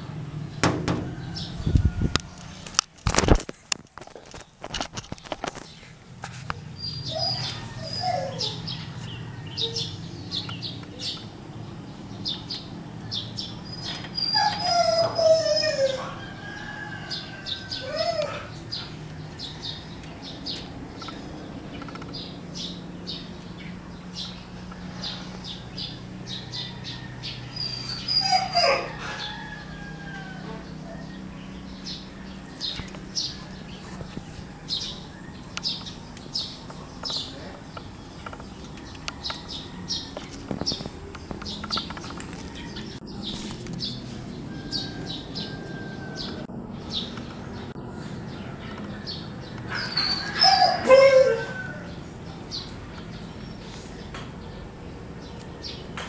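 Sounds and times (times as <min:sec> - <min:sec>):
dog whining and howling: 0:06.8 - 0:09.0, 0:13.6 - 0:16.4, 0:17.5 - 0:18.7, 0:27.5 - 0:31.1, 0:49.7 - 0:51.9.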